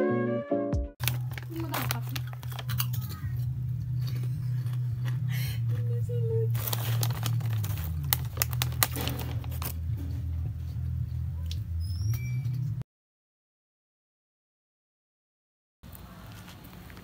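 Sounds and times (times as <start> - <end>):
foil chip bag crinkling: 1.0 - 3.4, 6.5 - 9.9.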